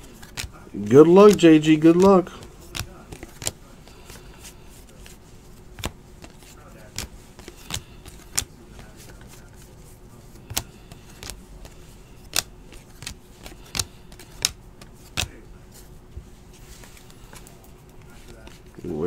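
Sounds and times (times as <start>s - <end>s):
trading cards snapping and tapping: 0.1s - 4.2s, 5.7s - 9.4s, 10.4s - 15.4s.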